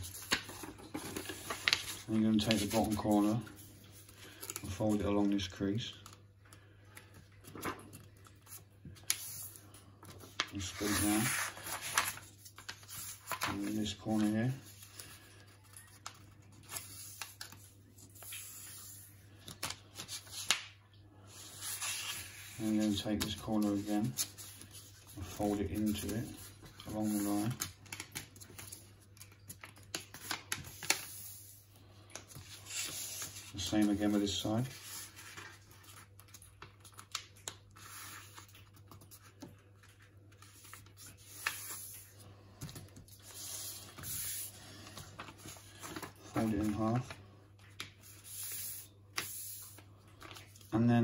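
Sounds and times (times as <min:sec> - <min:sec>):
paper rustling and crinkling: 0:00.0 - 0:20.7, 0:21.3 - 0:51.0.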